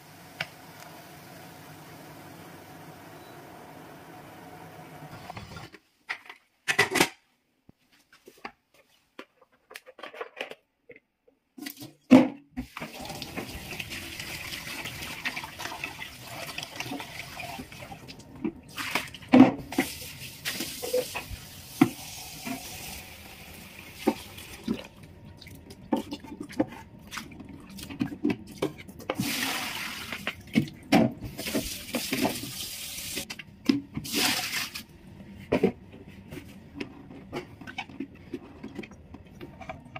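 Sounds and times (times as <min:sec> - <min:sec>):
tap water running into sink: 0:12.6 - 0:18.2.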